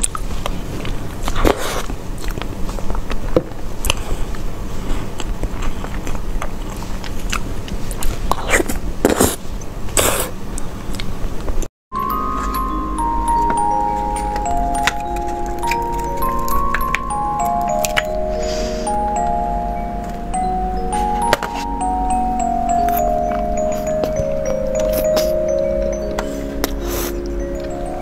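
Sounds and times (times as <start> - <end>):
person chewing cake: 0.0 - 9.4
music with bell-like notes: 11.9 - 28.0.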